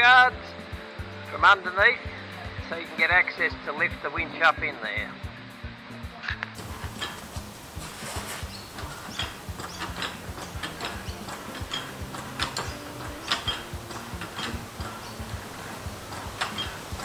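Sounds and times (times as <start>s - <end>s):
floor jack clicking and clunking: 6.6s - 17.0s.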